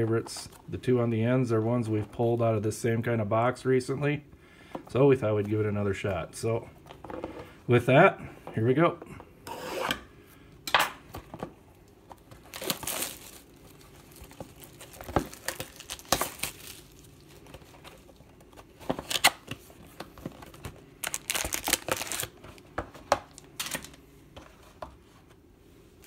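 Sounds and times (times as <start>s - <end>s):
card packs handled: 11.2s - 25.2s
plastic wrap tearing and crinkling: 12.3s - 18.2s, 18.9s - 19.7s, 20.4s - 22.6s, 23.2s - 24.0s.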